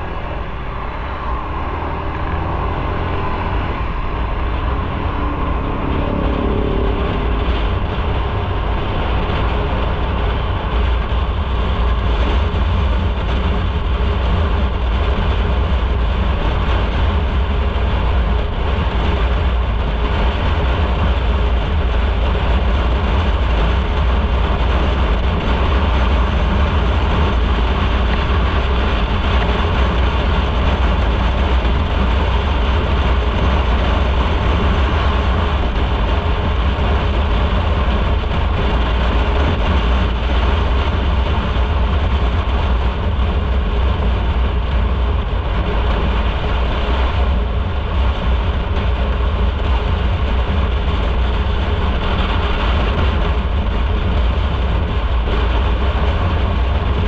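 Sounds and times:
motorcycle engine rumble: 0.0s - 57.0s
road and wind noise: 0.0s - 57.0s.

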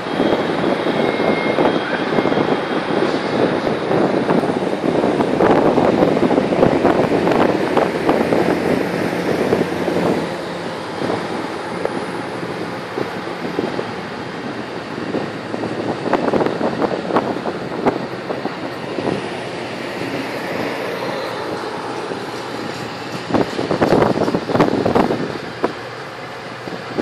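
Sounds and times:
train wheels rumbling on rail: 0.0s - 27.0s
wind buffeting microphone: 0.0s - 27.0s
wheels clacking over track: 17.0s - 27.0s.

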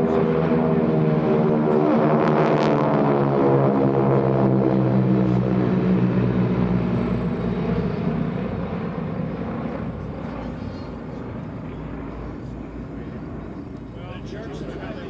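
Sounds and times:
propeller planes droning: 0.0s - 15.0s.

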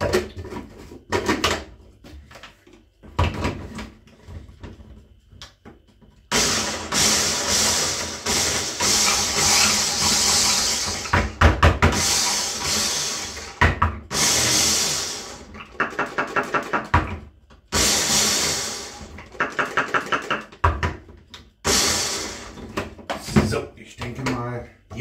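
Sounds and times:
electric chopper running: 6.3s - 16.8s, 17.7s - 20.2s, 21.6s - 22.6s.

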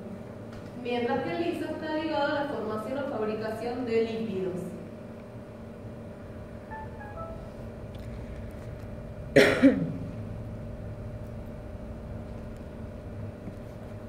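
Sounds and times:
steady low hum: 0.0s - 14.0s
person coughing: 9.4s - 10.0s.

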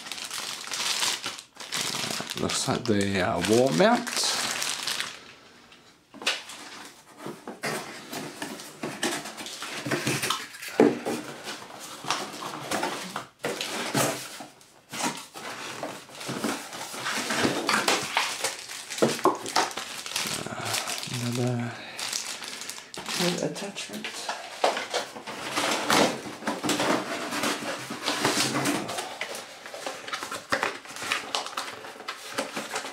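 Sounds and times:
plastic bags crinkling: 0.0s - 32.9s
cardboard rustling and scraping: 6.4s - 20.4s, 22.5s - 32.9s.

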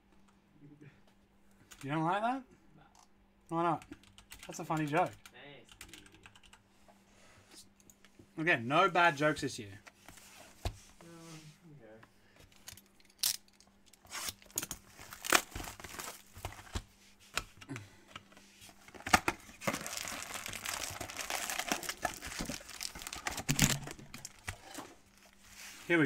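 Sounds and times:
foil packs crinkling: 14.1s - 16.7s, 18.9s - 25.8s
cardboard box crackling and tearing: 15.1s - 16.3s, 19.6s - 24.4s.

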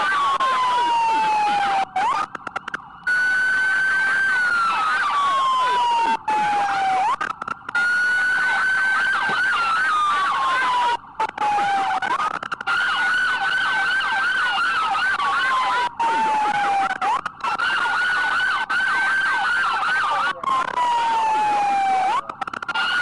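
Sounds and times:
fast yelping siren: 0.0s - 23.0s
wailing emergency siren: 0.0s - 23.0s.

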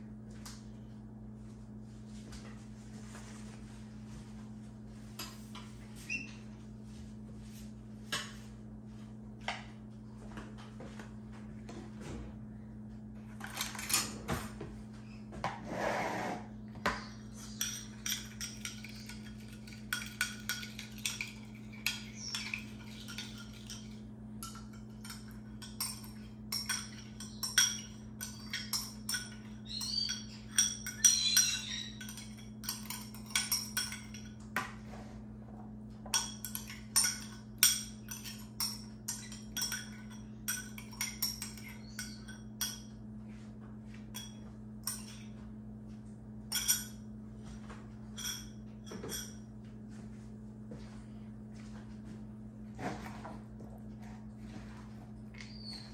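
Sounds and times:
steady low hum: 0.0s - 55.9s
utensils clinking against bowls: 13.3s - 14.3s, 16.9s - 35.0s, 35.9s - 43.0s, 43.9s - 45.5s, 46.4s - 47.1s, 48.0s - 49.5s, 53.0s - 55.9s.

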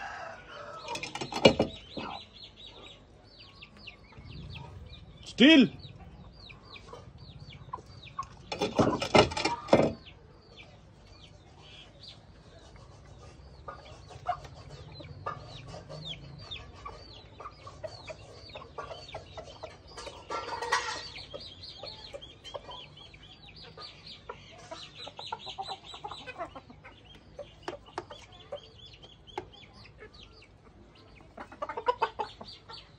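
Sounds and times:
hens clucking: 0.0s - 32.9s.

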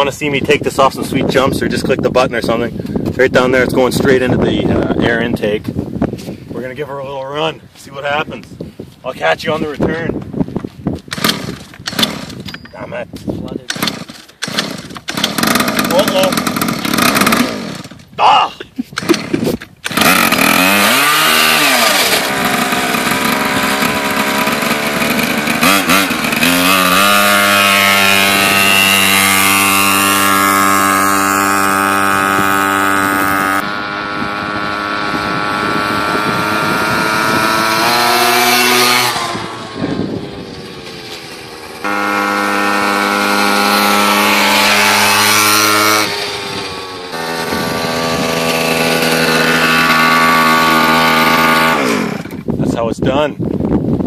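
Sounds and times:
pocket bike engine revving: 11.0s - 12.6s, 13.5s - 18.1s, 18.8s - 52.9s.

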